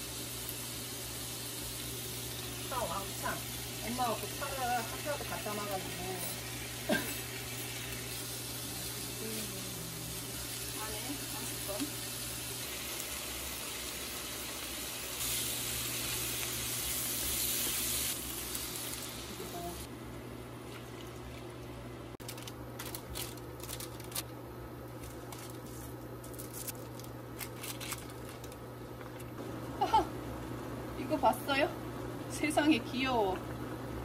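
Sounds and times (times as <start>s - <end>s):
meat and vegetables sizzling in pan: 0.0s - 19.9s.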